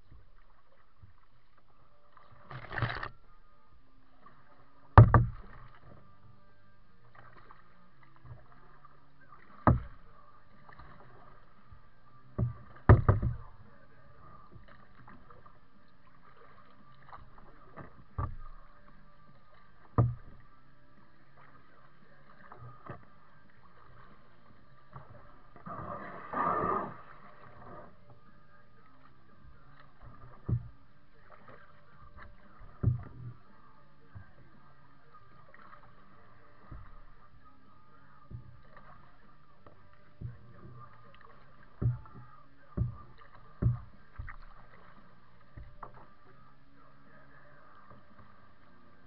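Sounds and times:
kayak paddle knocks: 4.9s - 6.0s, 9.4s - 11.6s, 12.2s - 15.5s, 16.1s - 18.8s, 19.4s - 20.5s, 26.6s - 34.6s, 35.2s - 46.6s.

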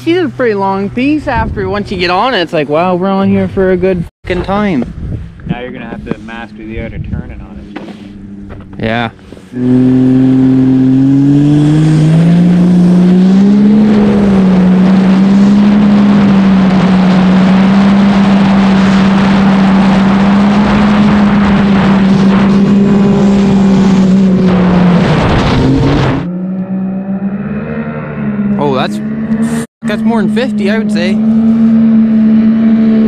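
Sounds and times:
snowmobile engine accelerating: 0.0s - 33.0s.

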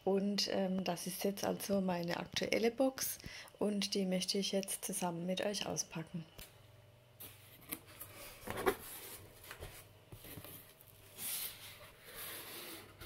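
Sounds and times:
cardboard and paper rustling: 7.2s - 13.0s
cardboard scraping and knocking: 7.6s - 10.7s.

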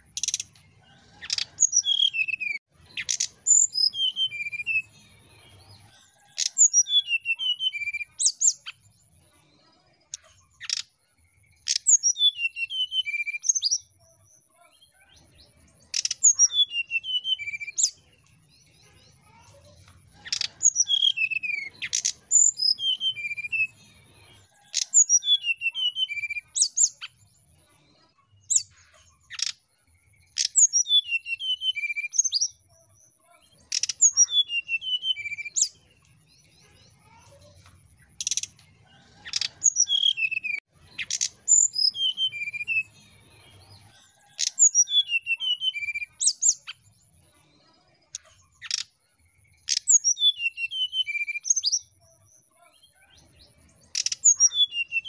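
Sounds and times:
bird singing whistled notes: 1.2s - 5.2s, 6.2s - 8.8s, 11.5s - 14.0s, 15.9s - 18.0s, 20.3s - 23.8s, 24.7s - 27.1s, 30.3s - 32.6s, 33.7s - 35.8s, 39.2s - 43.0s, 44.3s - 46.8s, 49.6s - 51.9s, 53.9s - 55.0s.

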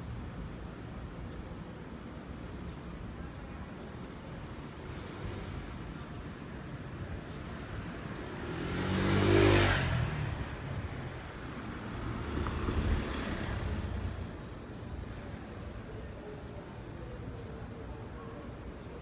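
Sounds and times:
street background noise: 0.0s - 19.0s
motor vehicle passing: 7.8s - 11.0s.

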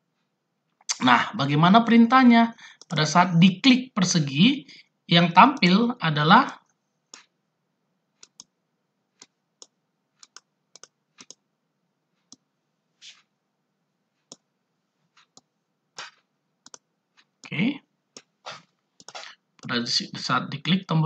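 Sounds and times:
computer mouse clicking: 7.1s - 7.4s, 8.2s - 8.6s, 9.2s - 11.4s, 12.2s - 13.3s, 14.2s - 14.5s, 15.1s - 17.5s, 18.1s - 19.7s.

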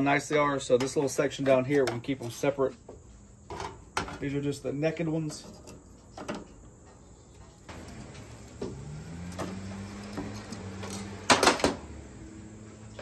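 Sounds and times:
low motor hum: 7.7s - 13.0s.

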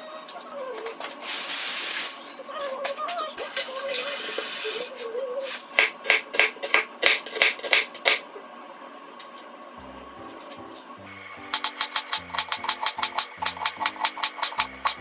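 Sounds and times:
knife chopping onion on board: 5.8s - 8.2s
low music notes: 9.8s - 14.0s.

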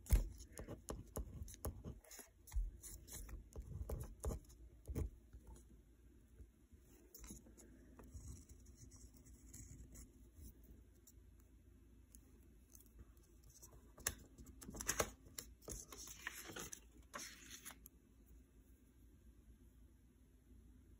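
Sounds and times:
paper rustling: 14.0s - 17.9s.

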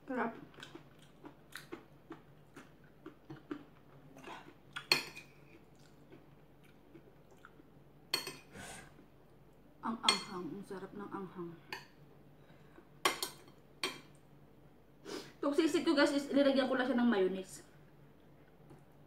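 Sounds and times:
chewing with wet mouth clicks: 0.4s - 7.7s.

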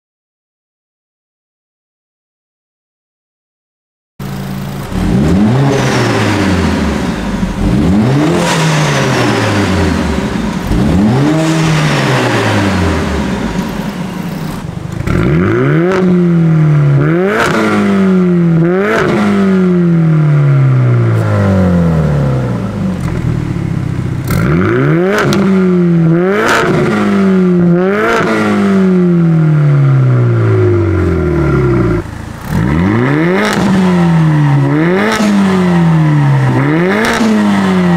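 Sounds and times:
car engine revving: 4.2s - 37.9s
exhaust crackles and pops: 13.5s - 16.1s, 22.9s - 25.6s.

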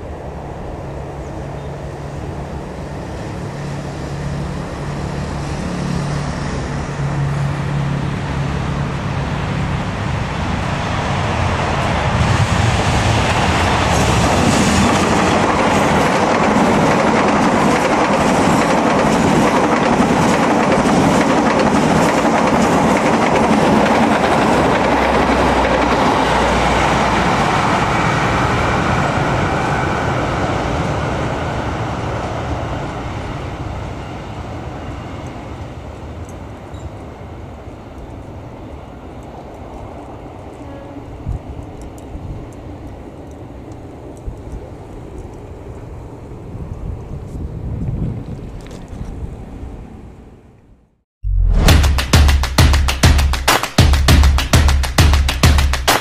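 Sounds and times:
diesel locomotive engine running: 0.0s - 30.0s
train wheels clattering over rail joints: 13.8s - 26.7s.

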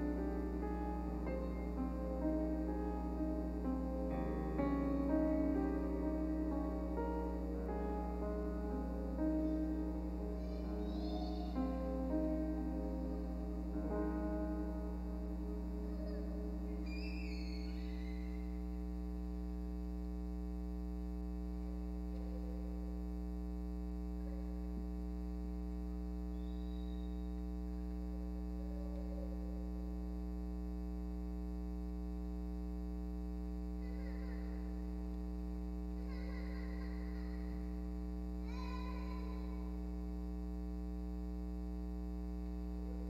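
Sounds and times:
piano notes: 0.0s - 18.6s
electrical mains hum: 0.0s - 43.0s.

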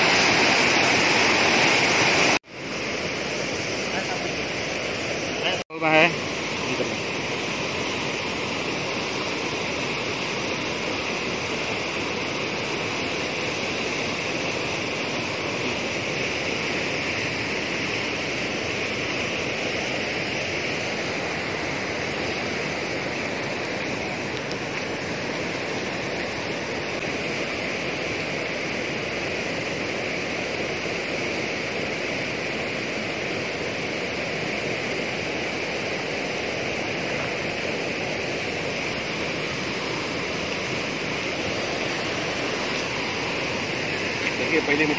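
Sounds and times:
water rushing down concrete channel: 0.0s - 4.6s, 5.4s - 44.9s.

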